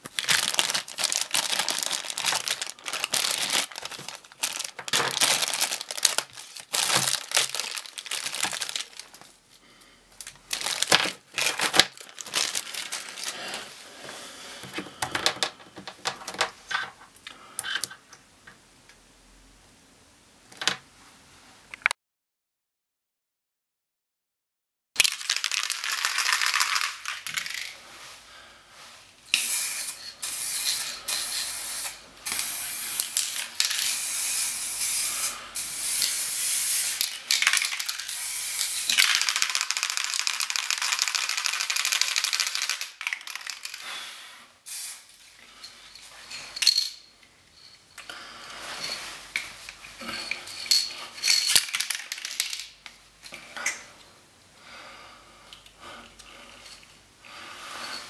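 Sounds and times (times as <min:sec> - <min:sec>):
hissing spray: 0:29.4 - 0:33.0, 0:33.8 - 0:37.0, 0:44.6 - 0:45.1.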